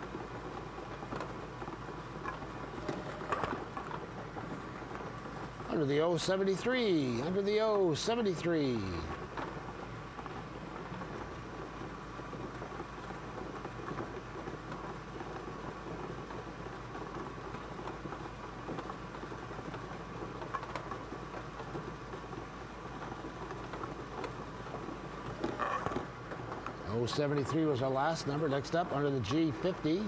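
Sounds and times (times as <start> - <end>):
balls tumbling and clicking: 0.0 - 30.0
bingo ball blower machine: 0.0 - 30.0
low steady hum: 0.0 - 30.0.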